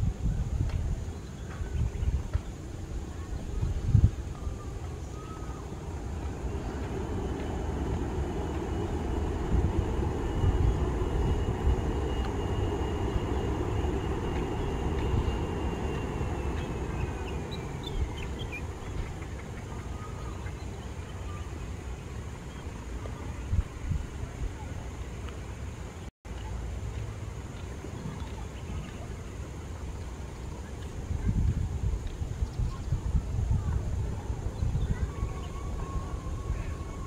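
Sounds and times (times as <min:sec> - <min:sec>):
jet engine rumble: 0:00.0 - 0:26.1
jet engine whine: 0:00.0 - 0:37.0.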